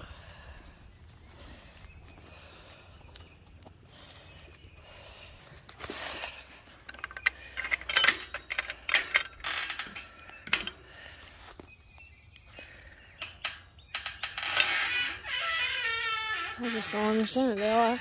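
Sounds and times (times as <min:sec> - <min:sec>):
metal clinking and rattling: 0:05.9 - 0:11.2, 0:12.8 - 0:18.0.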